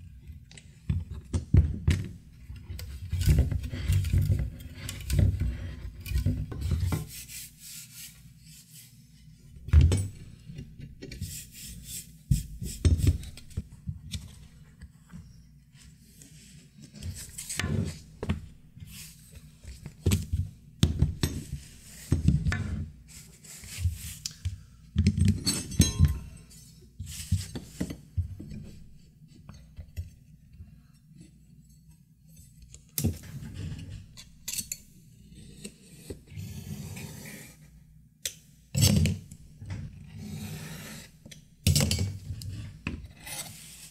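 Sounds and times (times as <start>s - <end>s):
metal ruler clinking: 25.4s - 26.4s.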